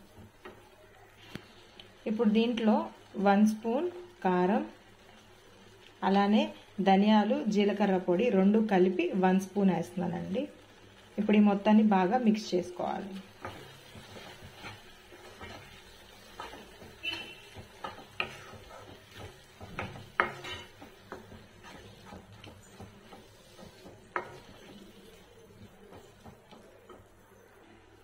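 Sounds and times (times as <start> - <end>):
spatula scraping paste in pan: 13.4 - 26.7
spatula knocking against pan: 16.3 - 24.8.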